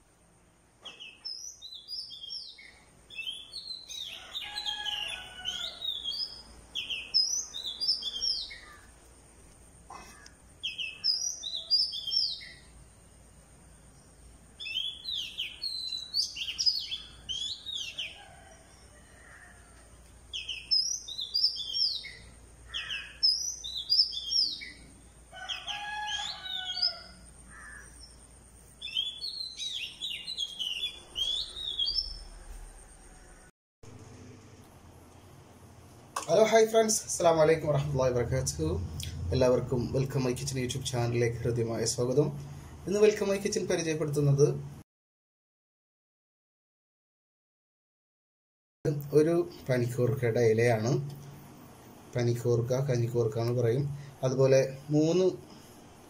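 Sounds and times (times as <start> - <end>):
small birds chirping: 0.8 - 33.5.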